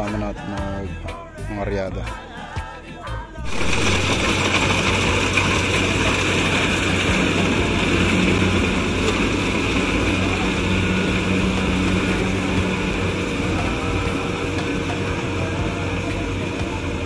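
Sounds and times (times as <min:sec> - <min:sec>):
machinery humming and hissing: 0:03.4 - 0:17.0.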